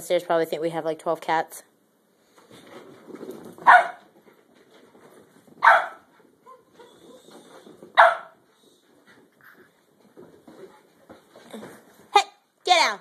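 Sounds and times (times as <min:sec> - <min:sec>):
faint scuffling: 0:02.2 - 0:12.2
dog barking: 0:03.6 - 0:04.0, 0:05.6 - 0:06.1, 0:08.0 - 0:08.4.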